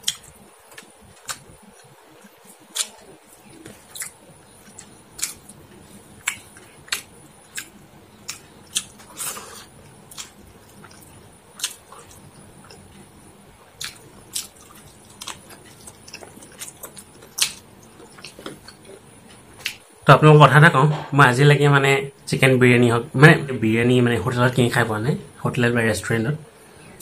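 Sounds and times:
wet chewing smacks: 0:06.2 - 0:07.7, 0:13.8 - 0:19.0.

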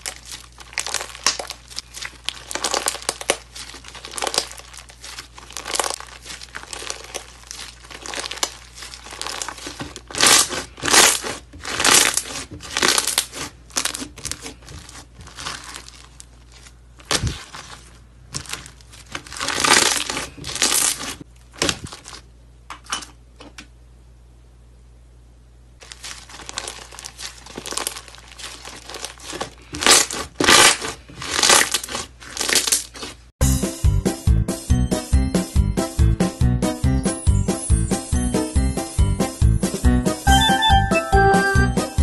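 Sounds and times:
hands squishing beaded slime: 0:00.0 - 0:22.2, 0:25.8 - 0:33.3.

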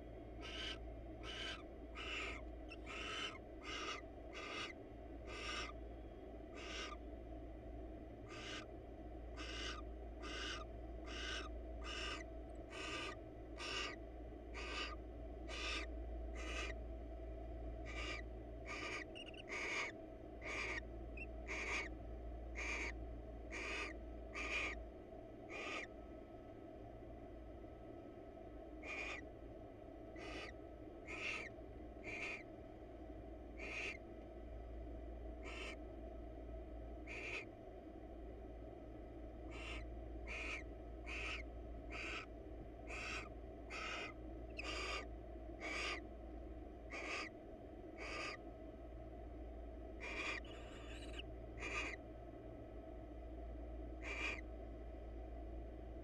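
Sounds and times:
steady low hum: 0:00.0 - 0:56.0
owl hissing snore calls: 0:00.4 - 0:05.8, 0:06.6 - 0:07.0, 0:08.3 - 0:08.7, 0:09.4 - 0:16.8, 0:17.9 - 0:20.8, 0:21.5 - 0:21.9, 0:22.6 - 0:24.8, 0:25.5 - 0:25.9, 0:28.8 - 0:29.2, 0:30.2 - 0:32.5, 0:33.6 - 0:34.0, 0:35.4 - 0:35.8, 0:37.1 - 0:37.5, 0:39.5 - 0:42.3, 0:42.9 - 0:46.0, 0:46.9 - 0:47.3, 0:48.0 - 0:48.4, 0:50.0 - 0:52.0, 0:54.0 - 0:54.4.

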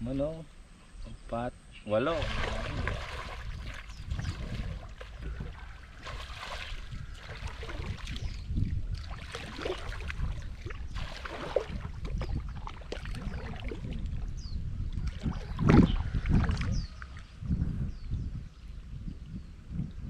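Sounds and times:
water sloshing and splashing: 0:02.0 - 0:17.3
wind rumble on microphone: 0:02.1 - 0:20.0.

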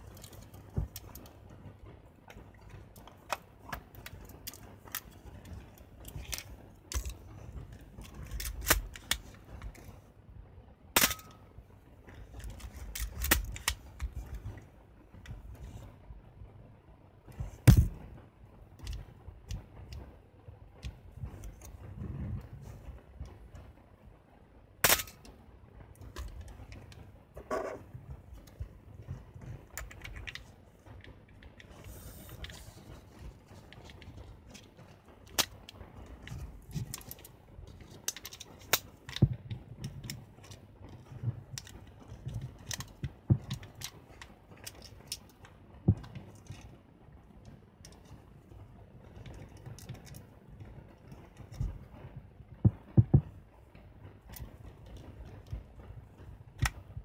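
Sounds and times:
rustling handling noise: 0:25.9 - 0:57.0.

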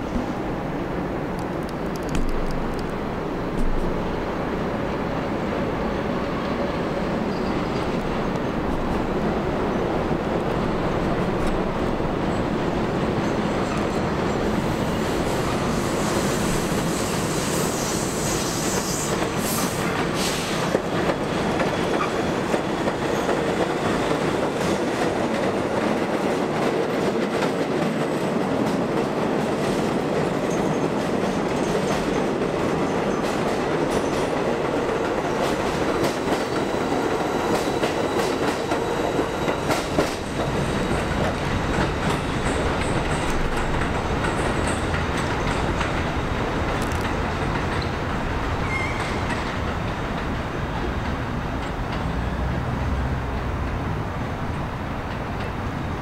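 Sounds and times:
train wheels rumbling: 0:00.0 - 0:56.0
clickety-clack over rail joints: 0:01.3 - 0:04.2, 0:10.0 - 0:56.0
faint high wheel squeal: 0:07.3 - 0:07.8, 0:48.6 - 0:49.4.

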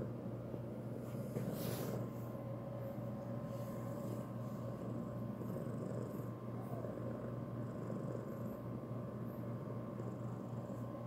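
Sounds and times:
cat purring: 0:03.5 - 0:11.0.

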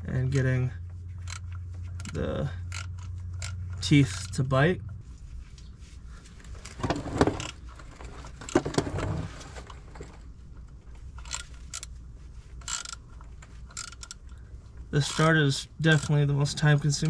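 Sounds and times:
thread tap metallic clicks and scrapes: 0:01.1 - 0:04.4.

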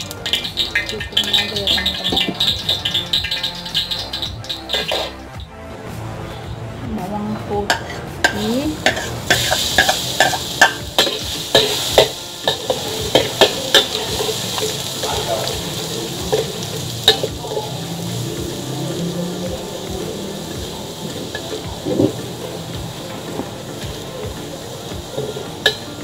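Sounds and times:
metal spatula scraping a pan: 0:00.0 - 0:05.2, 0:07.7 - 0:18.0
food sizzling in a wok: 0:00.0 - 0:05.4, 0:07.7 - 0:26.0.

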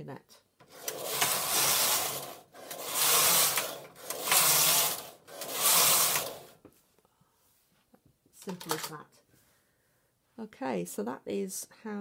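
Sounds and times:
knitting machine carriage clattering: 0:00.6 - 0:06.6.

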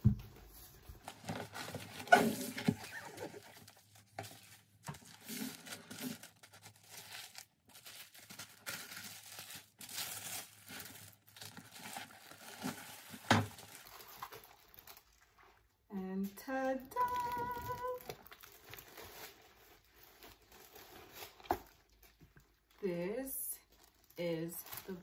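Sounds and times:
paper and fabric rustling: 0:16.9 - 0:22.3.

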